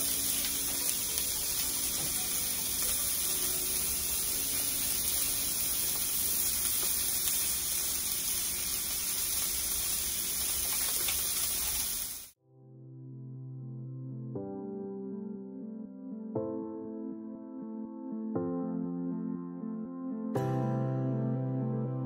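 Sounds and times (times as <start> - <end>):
steak sizzling in a pan: 0.0 - 12.4.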